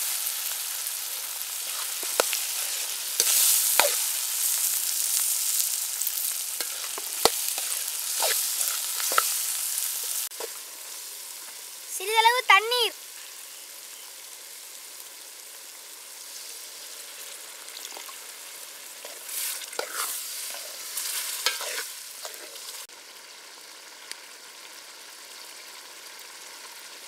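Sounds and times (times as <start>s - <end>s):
food sizzling and bubbling: 0.0s - 27.0s
ladle scraping pan: 1.6s - 4.1s, 6.6s - 10.6s, 19.0s - 22.8s.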